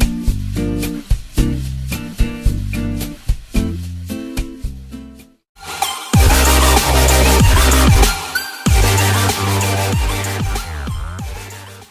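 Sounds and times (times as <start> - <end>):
electronic music with heavy bass: 5.6 - 11.9.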